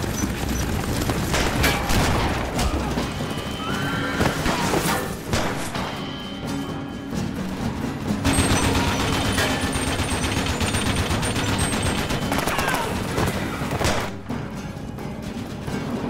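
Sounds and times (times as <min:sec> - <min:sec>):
gatling gun firing: 0:08.2 - 0:14.2.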